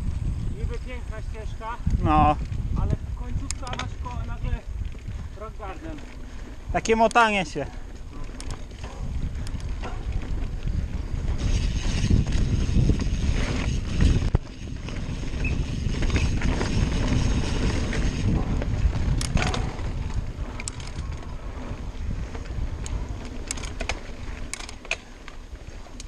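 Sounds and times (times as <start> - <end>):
bike rattling over ground: 0.0 - 26.0
wind buffeting microphone: 0.0 - 26.0
sharp clicks and knocks: 3.4 - 4.2.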